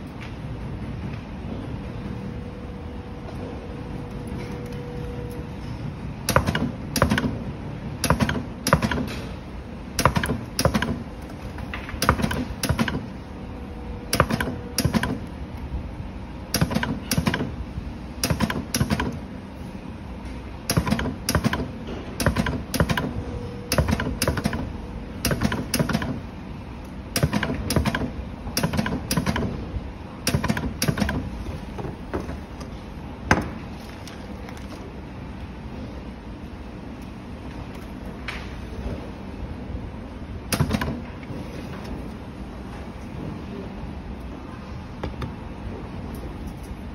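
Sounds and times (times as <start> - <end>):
spot welder sharp clicks: 6.2 - 7.4, 8.0 - 9.3, 10.0 - 11.0, 12.0 - 13.1, 14.1 - 15.3, 16.5 - 17.6, 18.2 - 19.2, 20.7 - 26.2, 27.1 - 29.6, 30.2 - 31.3.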